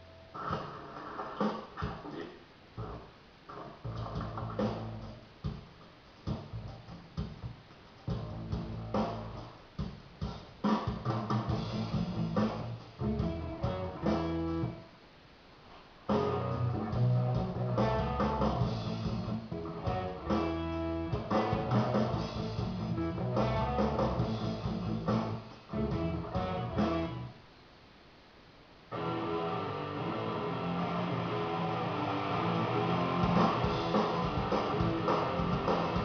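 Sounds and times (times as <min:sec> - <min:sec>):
background guitar music: 0:11.5 - 0:14.9, 0:16.1 - 0:27.4, 0:28.9 - 0:36.0.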